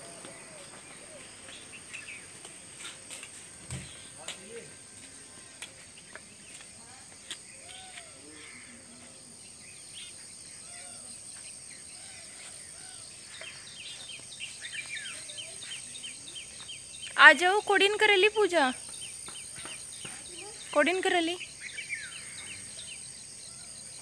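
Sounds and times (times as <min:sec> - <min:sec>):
birds calling: 0:00.0 - 0:06.6, 0:07.4 - 0:24.0
high insect drone: 0:00.0 - 0:24.0.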